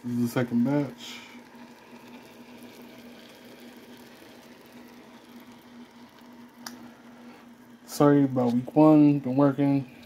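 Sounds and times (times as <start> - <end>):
steak sizzling in pan: 0.1 - 7.9.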